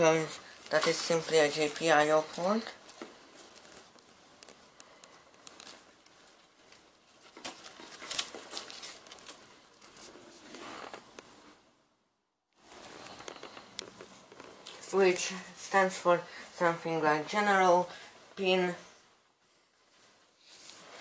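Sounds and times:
foil rustling and crinkling: 0:00.0 - 0:10.9.

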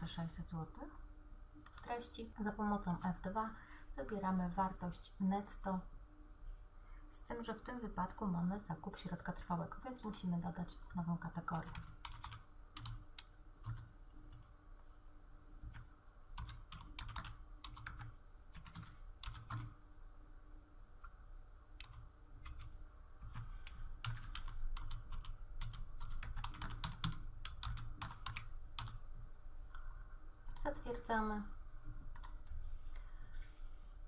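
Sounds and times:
typing on keyboard: 0:10.8 - 0:14.5, 0:15.6 - 0:19.7, 0:21.8 - 0:29.0, 0:32.1 - 0:32.4.

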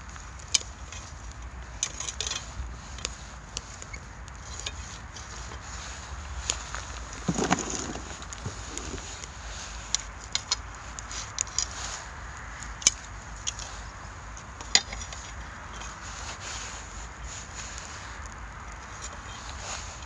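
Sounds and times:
pine cones crackling in fire: 0:00.0 - 0:20.0
knock and rustle of tending fire: 0:00.1 - 0:12.1.

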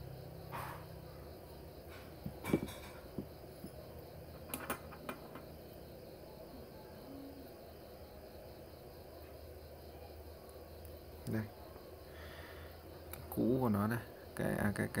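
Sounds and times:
small metal parts clicking on a mat: 0:04.4 - 0:05.5.

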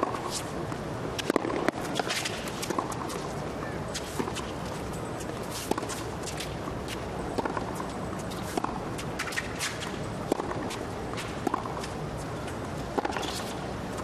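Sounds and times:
racket hitting tennis ball: 0:00.0 - 0:03.3, 0:03.9 - 0:04.6, 0:05.2 - 0:14.0.

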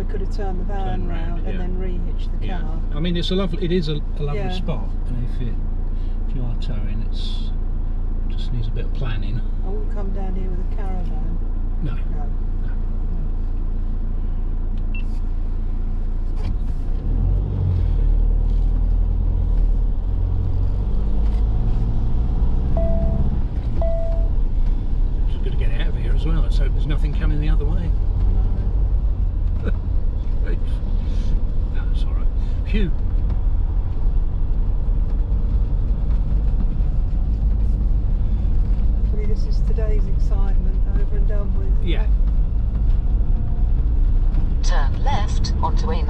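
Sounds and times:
motorhome engine rumbling: 0:00.0 - 0:46.0.

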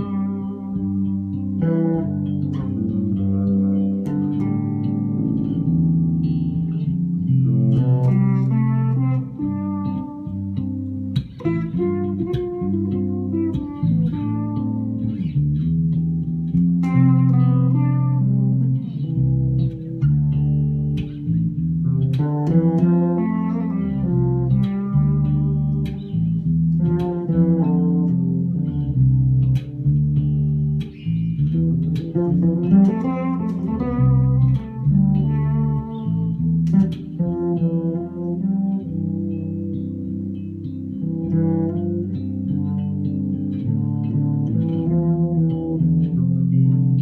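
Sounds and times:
electric bass duet: 0:00.0 - 0:47.0.

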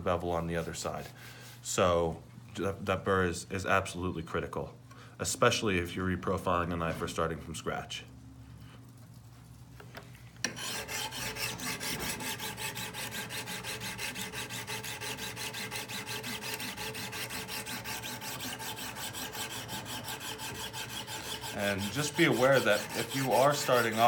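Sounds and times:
sharpening stone scrubbing steel blade: 0:10.5 - 0:24.0.

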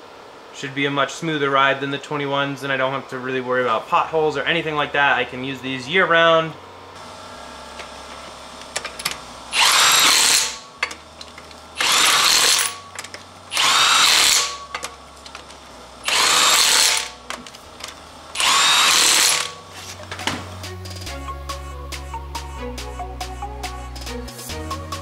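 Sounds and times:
impact wrench hammering: 0:07.7 - 0:21.1.

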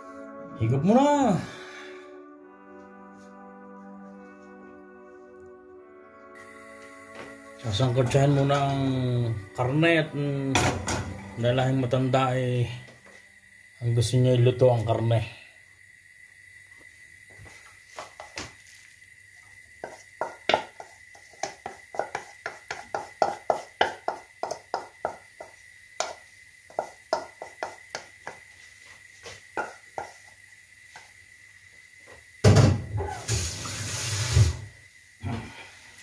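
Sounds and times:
utensil tapping and scraping bowl: 0:19.8 - 0:28.4, 0:29.5 - 0:30.2
hissing burst: 0:33.0 - 0:35.4.

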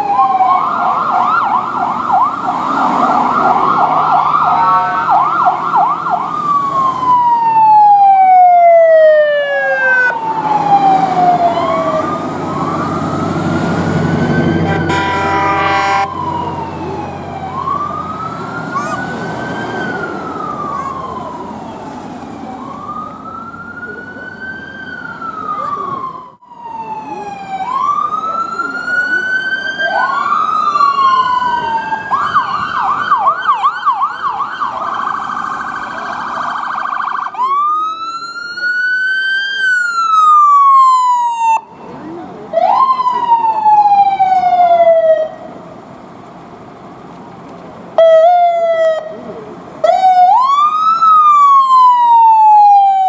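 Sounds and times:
fast siren yelp: 0:00.0 - 0:41.8, 0:42.5 - 0:45.5, 0:49.8 - 0:53.0
police siren wailing: 0:00.0 - 0:45.7, 0:48.0 - 0:53.0
short horn blast: 0:04.5 - 0:05.2, 0:14.6 - 0:16.1.

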